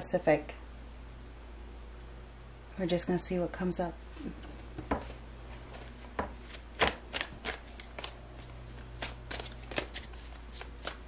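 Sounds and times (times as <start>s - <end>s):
cards being shuffled: 5.5s - 11.0s.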